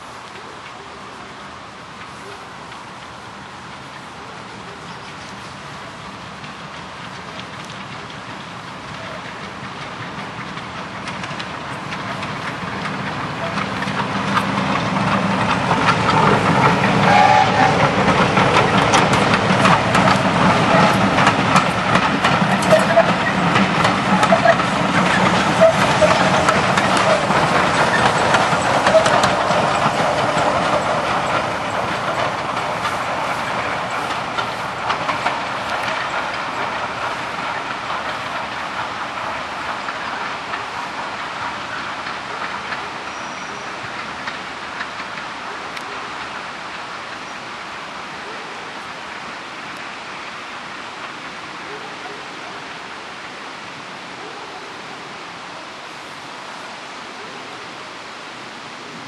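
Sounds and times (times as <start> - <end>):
diesel locomotive engine running: 0.0 - 59.0
wheels clattering over rail joints: 0.0 - 59.0
high wheel squeaks: 0.4 - 47.6.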